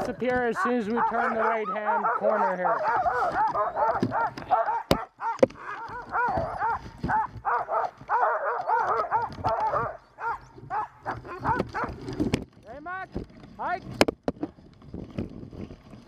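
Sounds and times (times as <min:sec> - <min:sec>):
dogs yipping and whining: 0:00.8 - 0:12.2.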